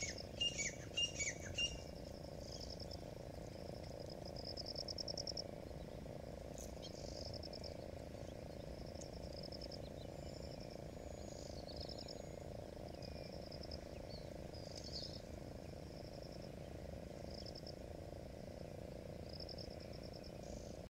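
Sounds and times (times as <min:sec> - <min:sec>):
bird calls: 0:00.0 - 0:03.7, 0:04.7 - 0:17.7
frogs trilling: 0:00.0 - 0:17.9
low background noise: 0:00.0 - 0:20.9.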